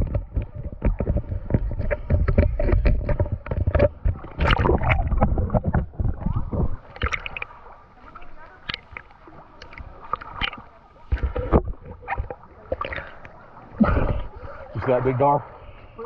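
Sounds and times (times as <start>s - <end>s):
muffled underwater gurgling: 0.0s - 14.9s
water splashing and sloshing: 0.0s - 16.0s.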